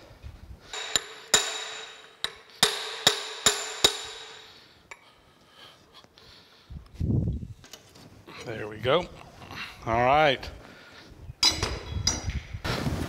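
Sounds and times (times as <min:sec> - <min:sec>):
hammer striking metal: 0:00.7 - 0:04.6.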